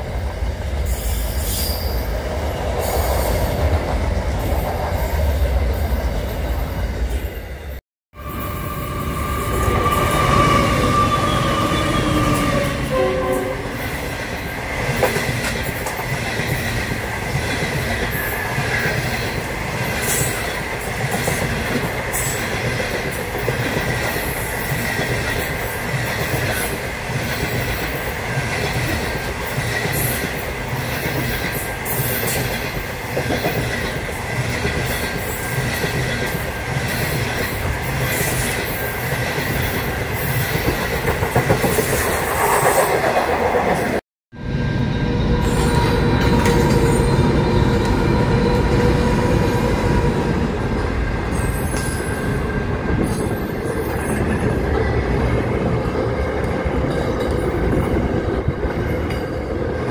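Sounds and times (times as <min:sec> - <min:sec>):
train wheels rumbling on rail: 0:00.0 - 0:59.9
high wheel squeal: 0:08.2 - 0:13.9.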